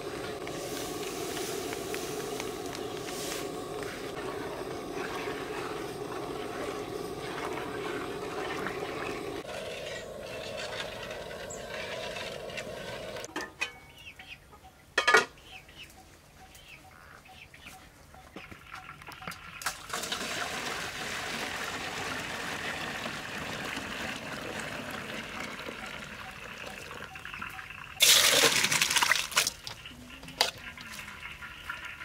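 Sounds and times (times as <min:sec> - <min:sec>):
gas burner flame rushing: 0:00.0 - 0:13.3
ladle stirring water: 0:00.0 - 0:13.3.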